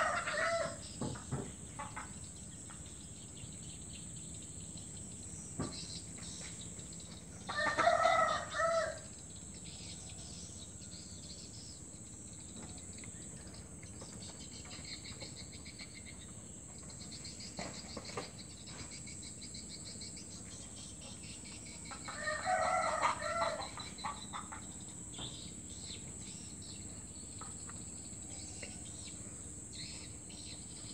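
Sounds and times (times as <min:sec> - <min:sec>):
rooster crowing: 0:00.0 - 0:00.9, 0:07.4 - 0:09.1, 0:22.1 - 0:23.9
insects droning: 0:00.0 - 0:30.9.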